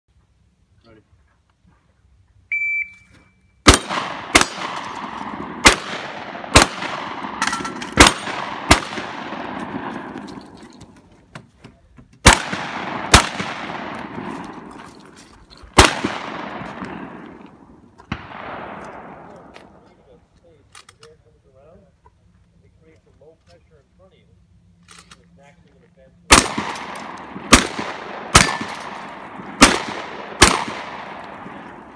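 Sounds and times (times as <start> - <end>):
shot timer beep: 2.5 - 3.6
shotgun shots with echo: 3.7 - 10.4, 12.2 - 14.7, 15.8 - 17.4, 18.1 - 19.5, 26.3 - 31.9.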